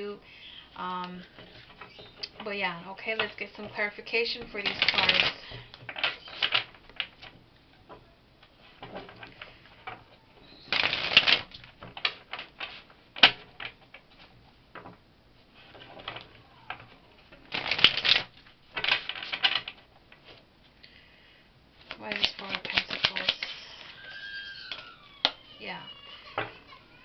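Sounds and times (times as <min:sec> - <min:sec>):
cards shuffling: 0:03.2 - 0:07.3, 0:10.6 - 0:14.3, 0:16.0 - 0:20.4, 0:21.8 - 0:25.4.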